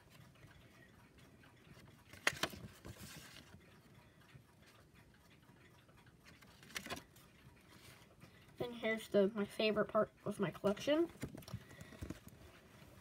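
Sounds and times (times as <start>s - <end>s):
banknotes rustling: 2.1s - 3.5s, 6.6s - 7.0s.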